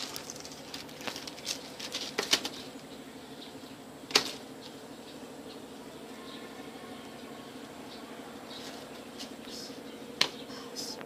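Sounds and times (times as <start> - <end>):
plastic rustling: 0.0 - 2.7.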